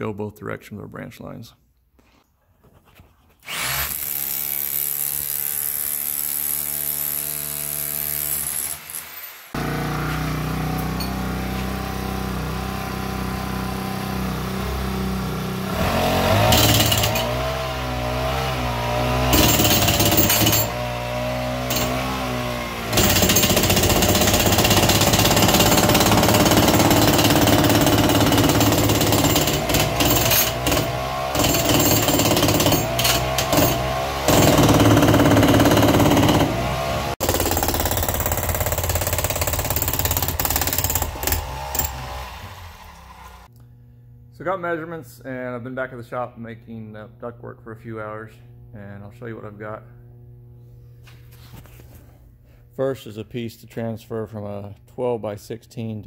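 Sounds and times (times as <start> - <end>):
rotary hammer chiselling concrete: 16.0 - 17.6, 19.2 - 20.9, 21.6 - 42.0.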